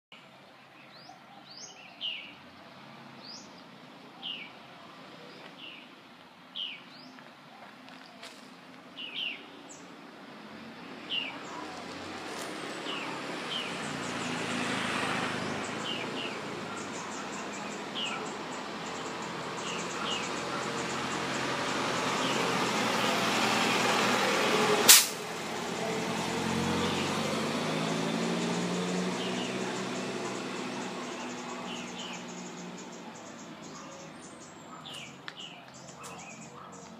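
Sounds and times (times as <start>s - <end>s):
bird chirping: 0.1s - 2.6s, 5.2s - 8.1s, 8.9s - 10.0s, 12.8s - 23.2s, 26.7s - 36.9s
sharp click: 24.9s - 25.2s.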